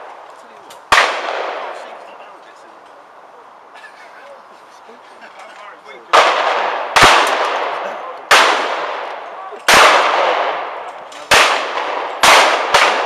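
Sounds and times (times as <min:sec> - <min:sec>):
shotgun shots echoing: 0:00.9 - 0:02.0, 0:06.1 - 0:13.0.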